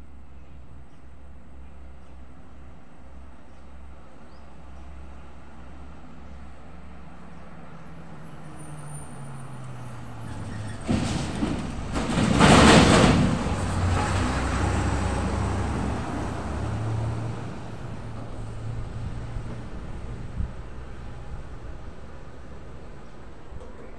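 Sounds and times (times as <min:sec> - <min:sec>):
heavy truck passing: 0:08.1 - 0:23.0.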